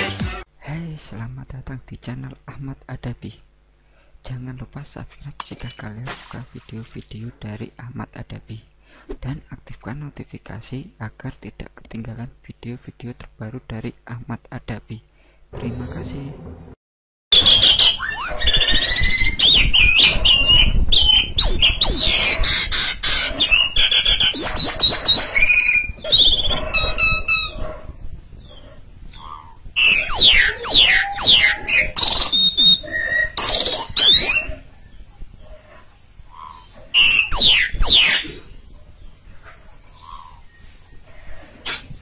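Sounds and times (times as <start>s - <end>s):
starling singing whistles and chatter: 17.4s - 27.6s, 29.8s - 34.5s.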